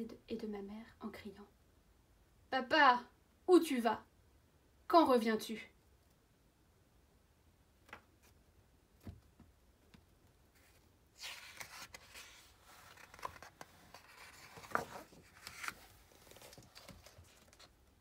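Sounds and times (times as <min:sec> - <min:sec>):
paper pages rustling: 0:10.5 - 0:17.8.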